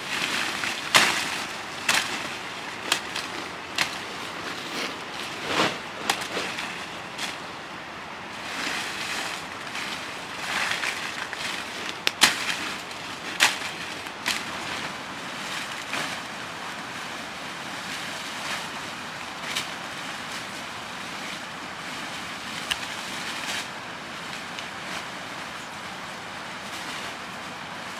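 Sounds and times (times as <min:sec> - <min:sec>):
leafy branches rustling: 0:00.0 - 0:27.9
sickle snapping through twigs: 0:00.9 - 0:04.0, 0:10.7 - 0:12.6, 0:13.3 - 0:14.5, 0:22.6 - 0:22.9.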